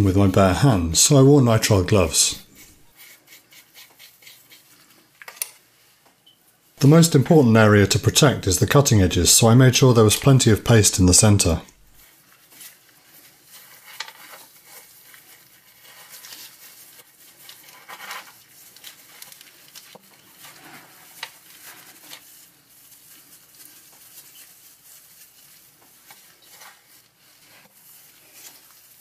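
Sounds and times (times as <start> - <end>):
hands scraping and tapping metal: 13.6 - 22.2.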